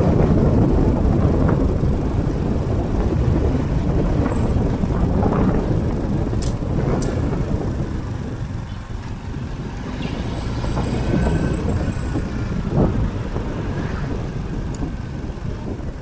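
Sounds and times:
road rumble: 0.0s - 16.0s
wind buffeting: 0.0s - 16.0s.

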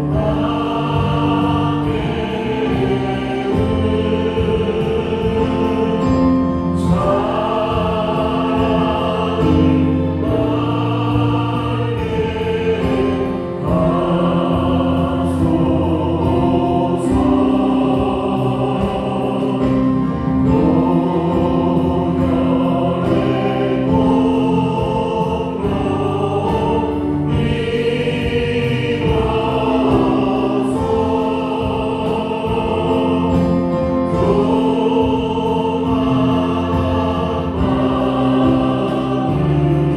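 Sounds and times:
bass guitar: 0.0s - 39.9s
drum strikes: 0.0s - 39.9s
group of voices singing: 0.0s - 39.9s
keyboard: 0.0s - 39.9s.

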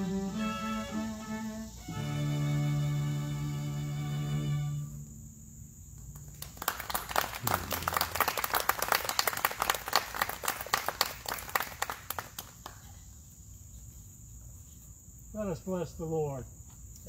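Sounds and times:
small audience applauding: 6.1s - 12.9s.

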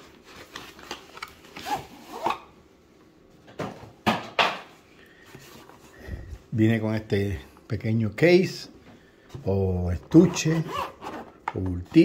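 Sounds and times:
cardboard packaging rustling: 0.0s - 2.4s.

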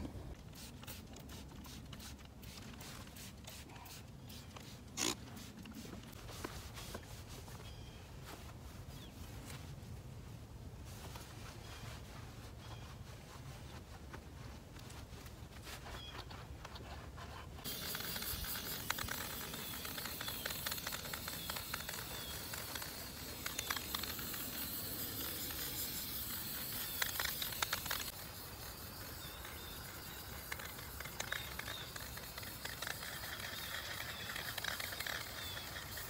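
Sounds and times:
spray paint can hissing: 0.4s - 6.2s, 17.6s - 36.0s.

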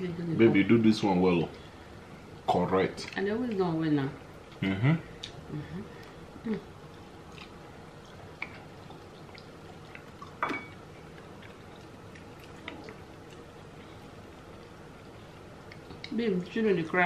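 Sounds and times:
chewing and mouth clicks: 6.8s - 16.2s.

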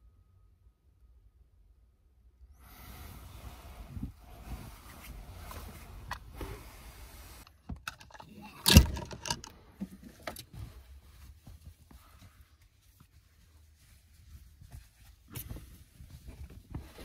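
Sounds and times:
clothing rustling: 3.1s - 7.4s, 9.8s - 17.0s.

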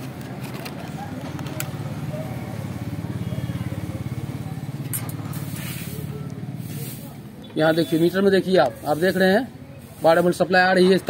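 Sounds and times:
small engine idling: 0.4s - 6.8s.

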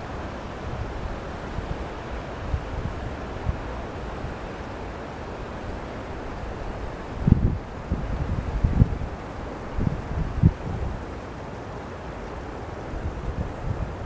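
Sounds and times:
insects chirring: 0.0s - 11.4s, 12.2s - 14.0s
wind on microphone: 6.7s - 11.1s, 13.0s - 14.0s.

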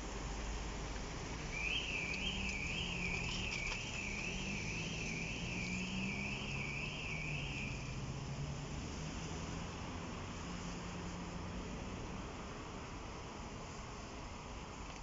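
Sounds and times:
level crossing warning alarm: 1.5s - 8.1s.

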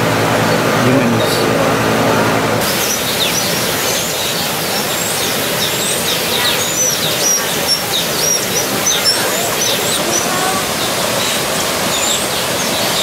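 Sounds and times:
steady rushing hiss: 0.0s - 13.0s
small birds chirping: 2.6s - 13.0s.

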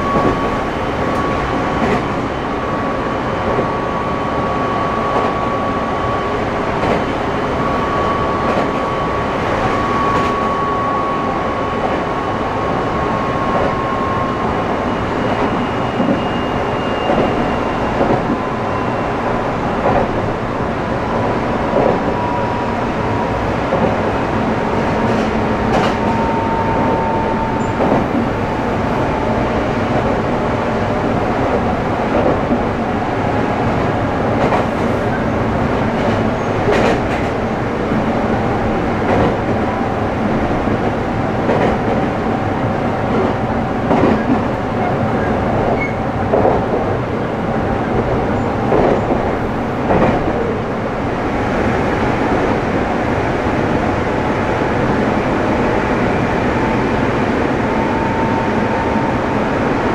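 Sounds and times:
train running noise: 0.0s - 59.9s
rail-joint clicks: 0.1s - 2.2s, 6.7s - 7.2s, 8.4s - 8.9s, 13.5s - 13.8s, 15.3s - 16.4s, 17.0s - 18.4s, 19.8s - 20.2s, 21.7s - 22.2s, 23.7s - 24.2s, 25.0s - 28.4s, 34.4s - 35.1s, 35.9s - 37.4s, 39.0s - 39.6s, 41.4s - 42.1s, 43.1s - 47.0s, 47.9s - 50.5s.

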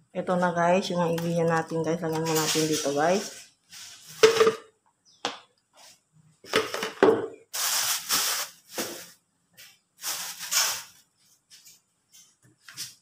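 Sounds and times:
bowl and jug knocking on counter: 4.2s - 4.6s, 7.0s - 7.4s.

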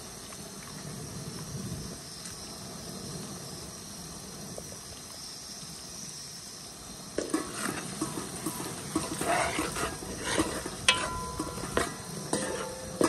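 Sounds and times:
oil sizzling in a pot: 4.6s - 13.0s
wooden spatula knocking pot: 8.0s - 13.0s.

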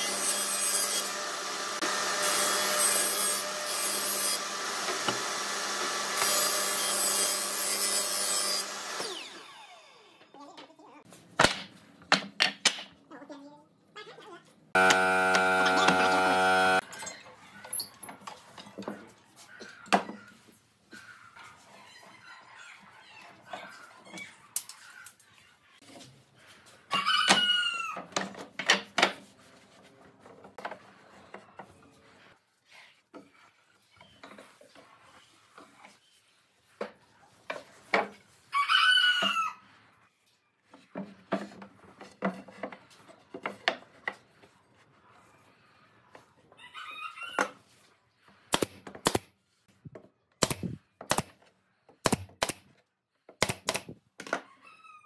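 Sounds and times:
pneumatic nail gun firing: 14.8s - 16.8s, 48.5s - 49.3s, 50.4s - 51.4s, 52.0s - 52.6s, 53.4s - 54.0s.

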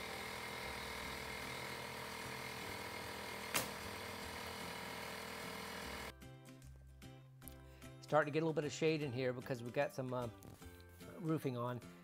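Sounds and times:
nail gun firing: 3.4s - 4.0s.

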